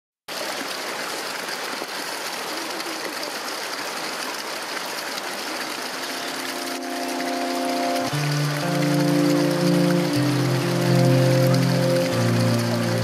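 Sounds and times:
flowing water rushing: 0:00.3 - 0:13.0
music with held notes: 0:06.0 - 0:13.0.

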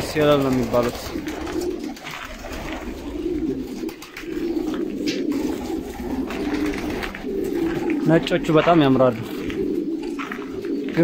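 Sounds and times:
pigeons cooing: 0:00.0 - 0:11.0.

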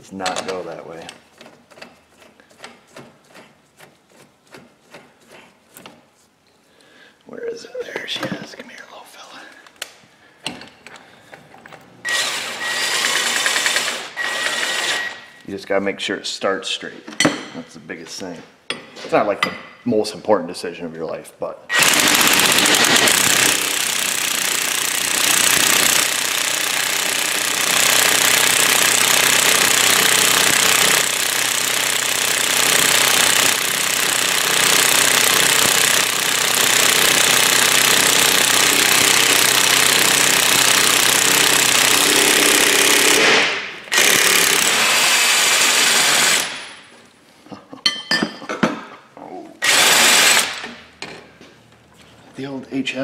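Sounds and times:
impact wrench hammering: 0:21.7 - 0:46.8.

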